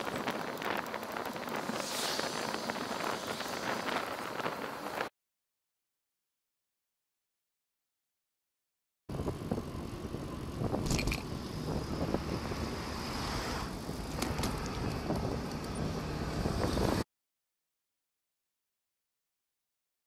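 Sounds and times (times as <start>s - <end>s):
bicycle tyre and road noise: 0.0s - 5.1s, 9.1s - 17.0s
wind buffeting microphone: 0.0s - 5.1s, 9.1s - 17.0s
passing motor traffic: 9.1s - 17.0s.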